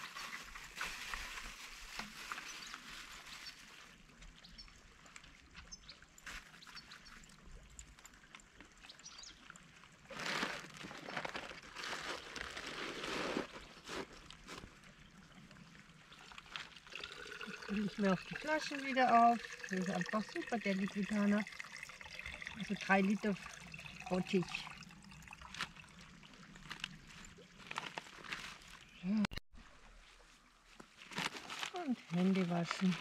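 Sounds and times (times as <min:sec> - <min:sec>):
bag rustling: 0:26.6 - 0:28.9, 0:31.0 - 0:33.0.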